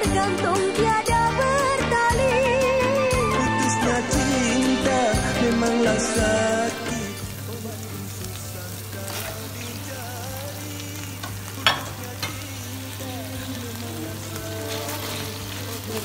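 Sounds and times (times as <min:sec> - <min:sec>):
noodles sizzling in a wok: 0:00.0 - 0:16.0
spatula stirring in a wok: 0:08.9 - 0:16.0.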